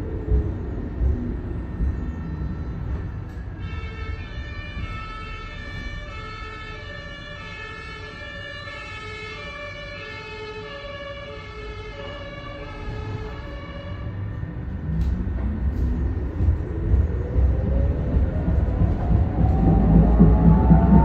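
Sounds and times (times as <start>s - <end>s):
low running rumble: 0.0s - 6.2s, 14.1s - 21.0s
tram electronic tones: 0.0s - 21.0s.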